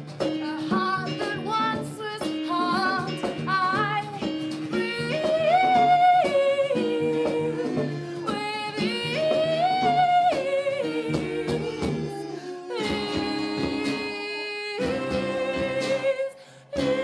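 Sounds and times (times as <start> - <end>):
person singing long sliding notes: 3.9 - 17.0.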